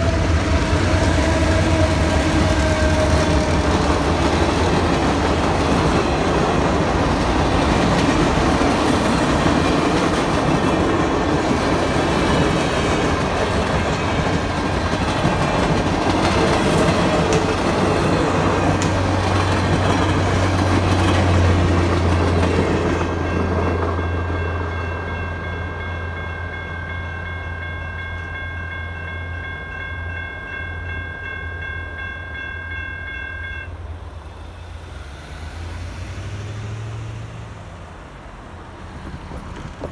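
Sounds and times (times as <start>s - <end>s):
passenger train rolling past: 0.0s - 39.9s
electronic crossing bells ringing: 23.2s - 33.8s.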